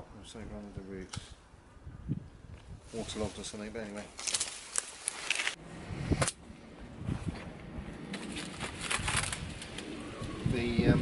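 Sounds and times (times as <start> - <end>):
plant leaves rustling: 2.8 - 5.6, 8.1 - 10.8
stem cracking: 3.9 - 5.6, 8.1 - 9.9.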